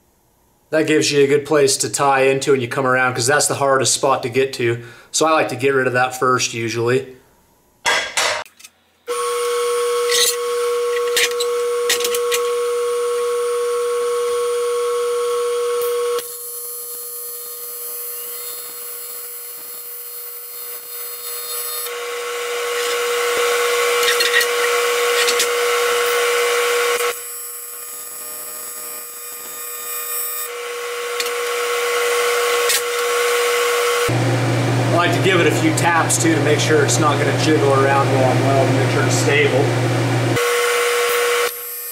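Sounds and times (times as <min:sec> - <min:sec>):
welding arc buzzing: 0:09.1 - 0:41.9.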